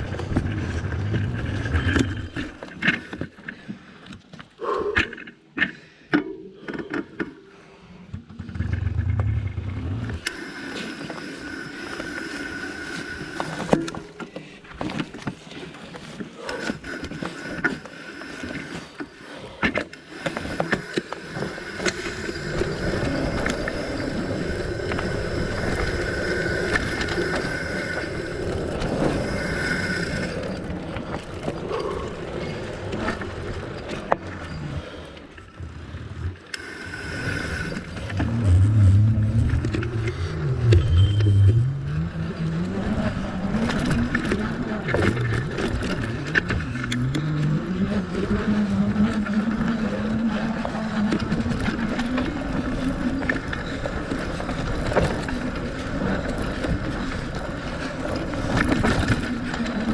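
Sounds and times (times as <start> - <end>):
thin whine: 0.0 - 3.0, 16.4 - 59.9
bike tyres rumbling over dirt: 0.0 - 3.1, 8.3 - 10.2, 20.1 - 35.0, 37.0 - 59.9
bike rattling and knocking: 43.0 - 59.9.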